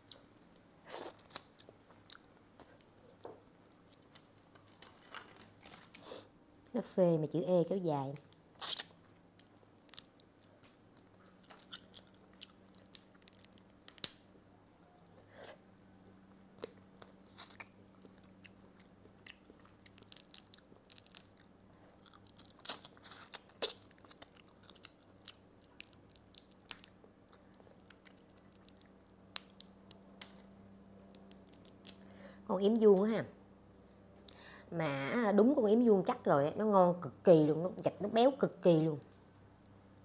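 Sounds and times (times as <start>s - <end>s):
chewing: 0.0s - 4.9s, 8.2s - 15.8s, 16.5s - 29.2s
crab shell cracking: 8.3s - 14.3s, 16.6s - 32.1s.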